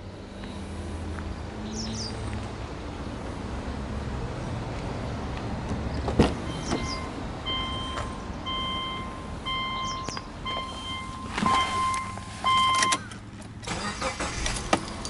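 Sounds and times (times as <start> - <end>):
car warning chime beeping: 6.5 - 13.2.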